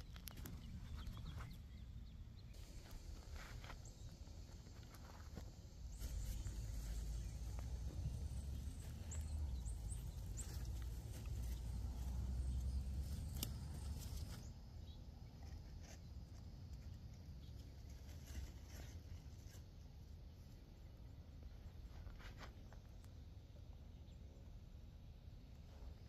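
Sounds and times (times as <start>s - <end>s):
low rumble on microphone: 0.0s - 14.6s.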